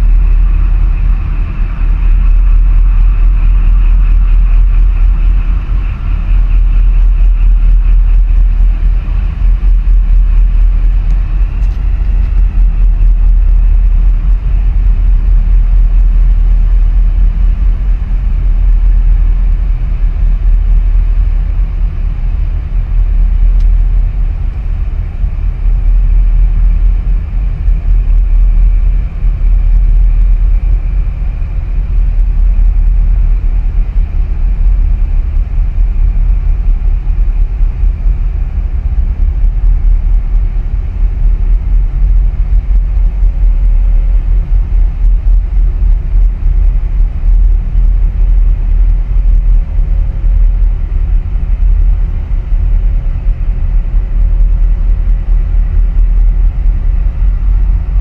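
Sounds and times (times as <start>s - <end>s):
ship engines rumbling: 0.0s - 34.6s.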